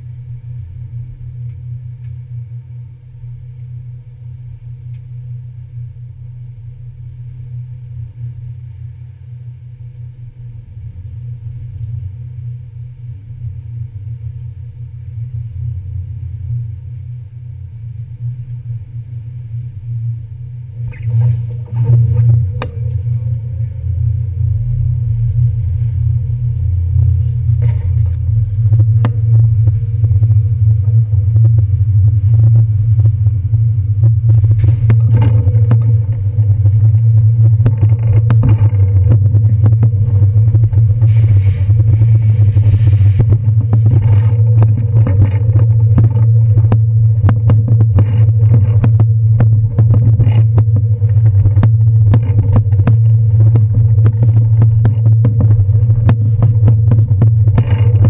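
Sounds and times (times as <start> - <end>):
ferry diesel engines rumbling: 5.8 - 58.0
clatter and sharp knocks: 34.0 - 41.0, 43.2 - 58.0.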